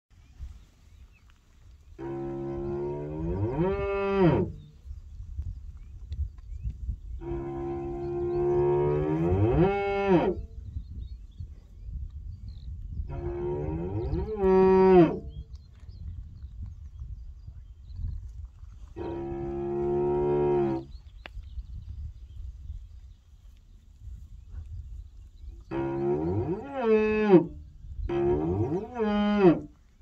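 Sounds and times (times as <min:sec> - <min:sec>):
cattle mooing: 0:07.2 - 0:10.4, 0:25.7 - 0:27.5, 0:28.1 - 0:29.7.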